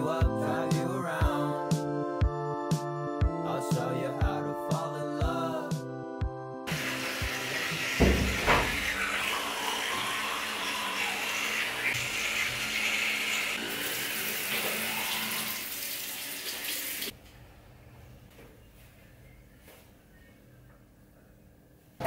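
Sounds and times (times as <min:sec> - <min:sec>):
tap running into a sink: 0:07.2 - 0:09.4.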